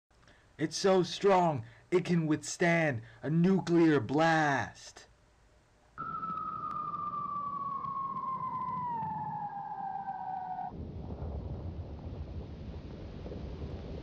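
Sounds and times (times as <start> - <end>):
falling whistle: 6.0 - 10.7
low rumbling explosion: 10.7 - 14.0.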